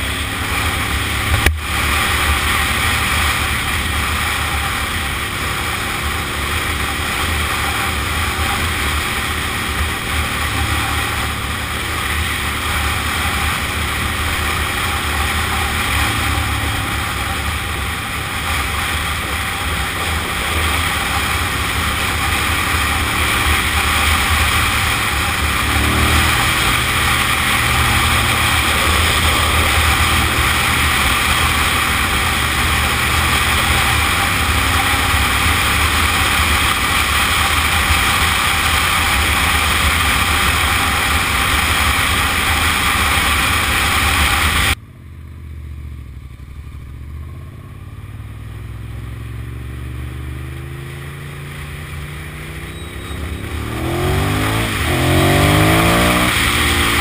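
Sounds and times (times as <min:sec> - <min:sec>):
motorcycle engine running: 0:00.0 - 0:57.0
wind rushing over microphone: 0:24.7 - 0:33.3.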